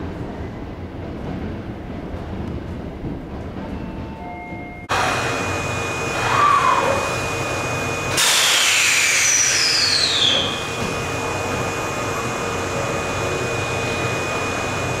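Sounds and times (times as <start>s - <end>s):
train equipment humming: 0.0s - 15.0s
compressed air hiss: 8.1s - 10.4s
falling whistling tones: 8.3s - 10.6s.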